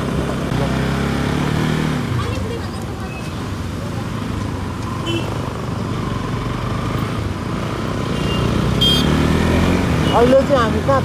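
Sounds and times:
motorcycle engine accelerating: 0.0 - 2.6, 5.4 - 11.0.

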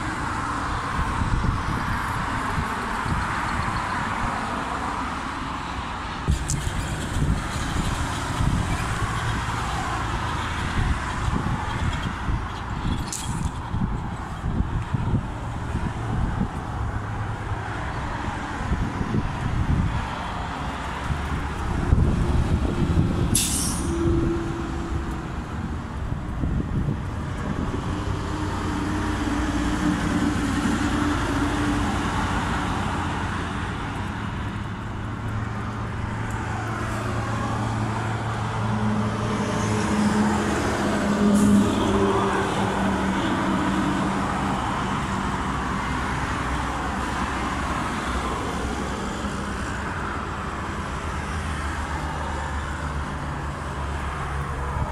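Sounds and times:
cars and truck passing: 0.0 - 54.9
wind rumbling on microphone: 0.0 - 54.9
short sharp hisses: 23.3 - 23.9.

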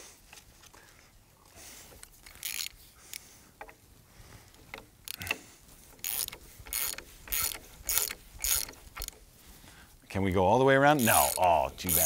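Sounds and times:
ratchet wrench clicking: 2.2 - 2.8, 6.0 - 9.2, 11.0 - 12.0.

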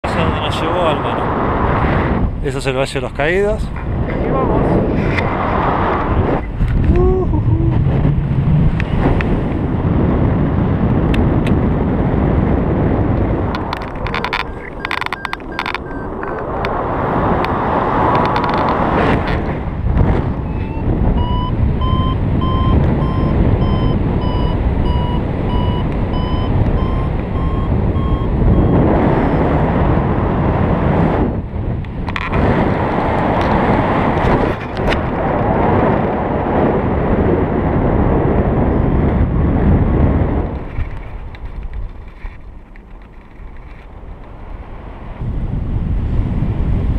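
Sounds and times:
wind rushing over microphone: 0.0 - 46.9
variometer beeps: 14.1 - 16.5, 20.4 - 29.6.

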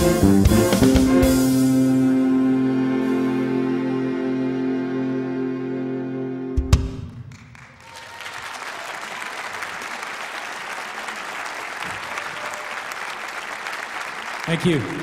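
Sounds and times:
audience applause: 7.3 - 15.0.

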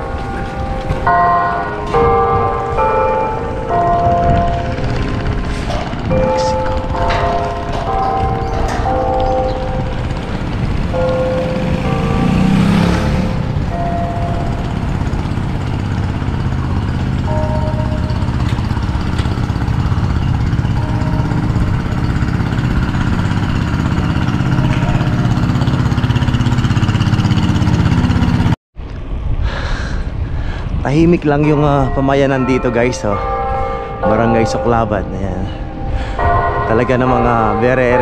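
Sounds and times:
wind rumble on microphone: 3.6 - 12.4, 28.8 - 36.7.

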